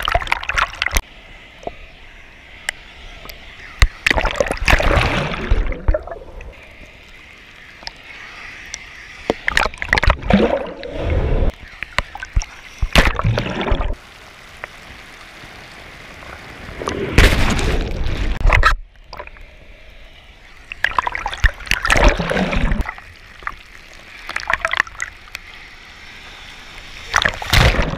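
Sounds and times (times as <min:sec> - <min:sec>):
rushing water: 0:00.0 - 0:27.9
seawater splashing: 0:20.7 - 0:27.9.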